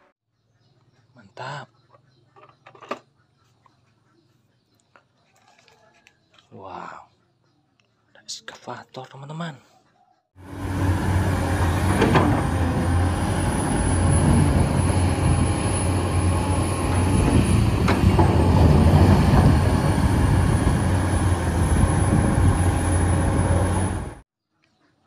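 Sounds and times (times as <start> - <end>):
excavator diesel engine: 10.4 - 24.2.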